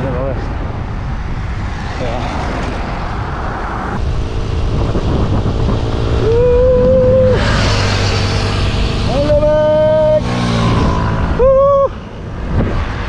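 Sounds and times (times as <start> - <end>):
road traffic passing: 0.0 - 13.0
wind rumble on microphone: 0.0 - 13.0
vehicle rushing past: 0.4 - 13.0.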